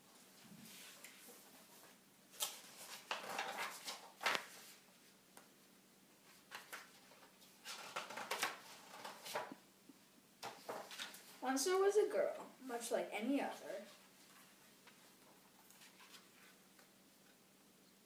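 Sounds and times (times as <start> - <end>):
book pages rustling: 0.7 - 5.5, 6.2 - 9.6, 10.4 - 11.4, 13.9 - 17.4.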